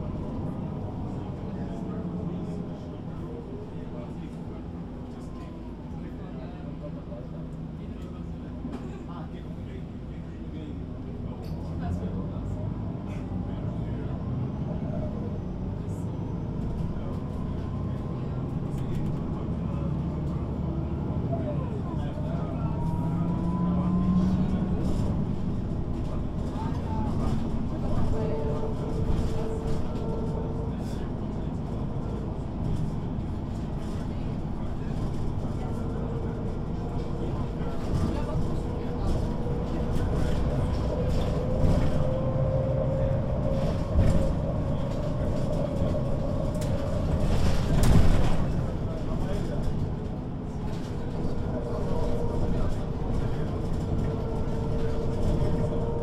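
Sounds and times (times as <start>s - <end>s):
bus diesel engine running: 0.0s - 56.0s
bus bump: 36.6s - 56.0s.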